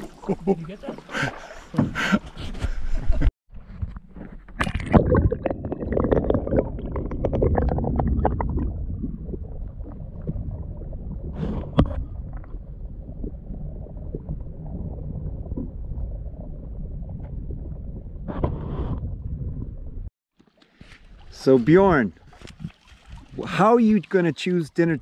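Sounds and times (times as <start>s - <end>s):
low underwater rumble: 4.8s - 20.1s
splash into water: 20.8s - 23.6s.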